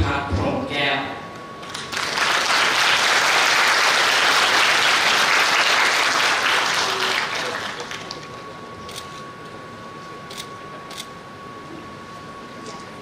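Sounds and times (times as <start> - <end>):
audience applauding: 1.6 - 8.4.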